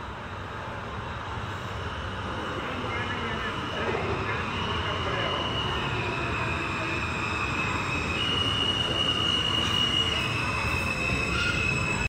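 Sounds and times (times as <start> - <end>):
subway train rumble: 0.0 - 12.0
high wheel squeal: 3.4 - 12.0.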